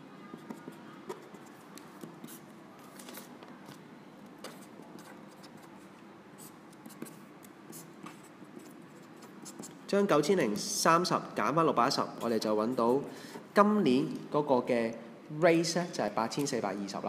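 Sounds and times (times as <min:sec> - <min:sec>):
marker writing on paper: 0:00.2 - 0:03.8, 0:04.4 - 0:09.9.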